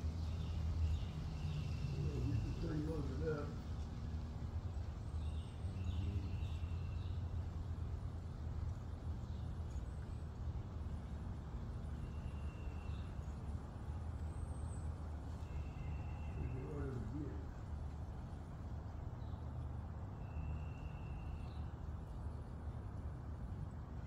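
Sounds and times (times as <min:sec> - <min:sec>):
faint bird chirps: 0:05.1 - 0:07.2, 0:12.0 - 0:13.4, 0:14.2 - 0:17.5, 0:20.1 - 0:21.7.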